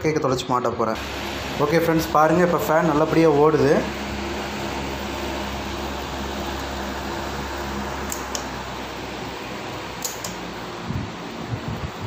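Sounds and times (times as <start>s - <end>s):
fan blades rushing air: 0.9s - 12.0s
low motor hum: 1.0s - 12.0s.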